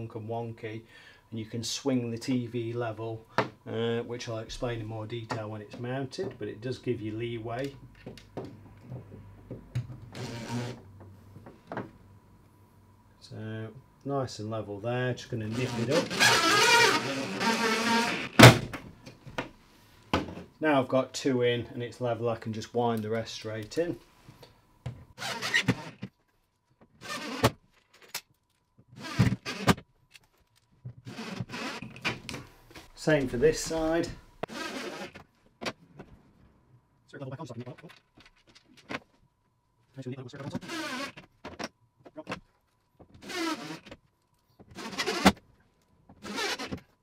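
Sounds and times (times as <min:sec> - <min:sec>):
power drill driving screws: 0:10.2 - 0:10.8, 0:15.5 - 0:18.4, 0:25.2 - 0:26.0, 0:27.0 - 0:27.5, 0:29.0 - 0:29.8, 0:31.1 - 0:32.0, 0:34.4 - 0:35.2, 0:40.6 - 0:41.2, 0:43.2 - 0:43.9, 0:44.7 - 0:45.4, 0:46.2 - 0:46.8.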